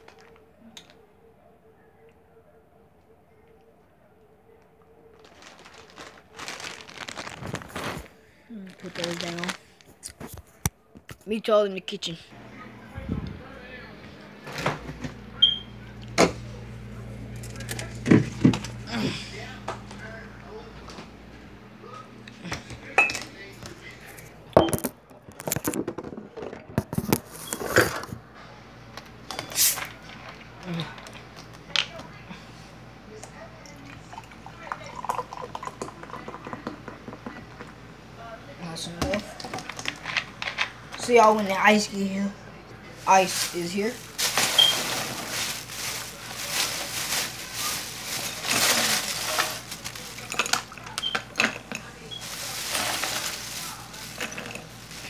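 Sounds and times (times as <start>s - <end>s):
plastic bag rustling and crinkling: 5.1s - 10.6s, 42.9s - 55.0s
plastic jug being handled: 5.2s - 8.1s, 43.0s - 55.0s.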